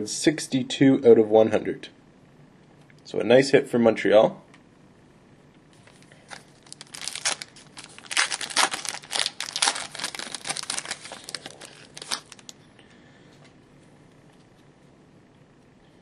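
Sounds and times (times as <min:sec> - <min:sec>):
foil wrapper crinkling: 0:05.9 - 0:12.6.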